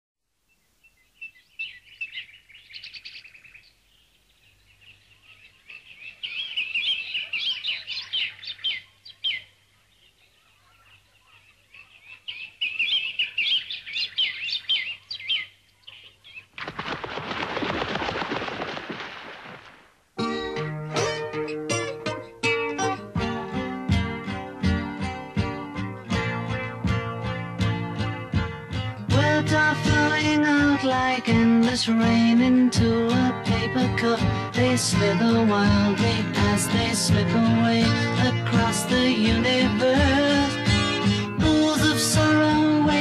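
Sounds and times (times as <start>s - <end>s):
small birds chirping: 0.4s - 16.6s
flock of wings taking off: 16.6s - 20.0s.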